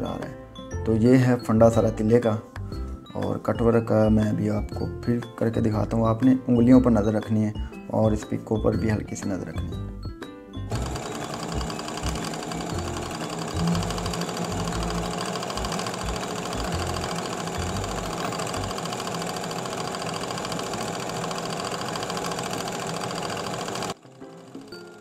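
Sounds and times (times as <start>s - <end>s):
overlock machine stitching rattle: 10.7s - 25.0s.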